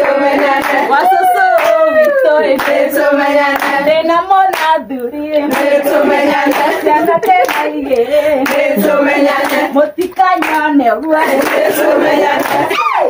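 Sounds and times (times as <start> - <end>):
women singing together: 0.0 - 13.0
hands clapping in time: 0.6 - 2.8, 4.5 - 5.8, 6.5 - 10.7.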